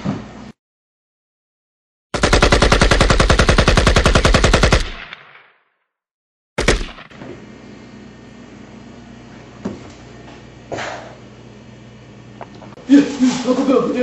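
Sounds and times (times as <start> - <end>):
machine-gun burst: 2.2 - 5.4, 6.6 - 7.2.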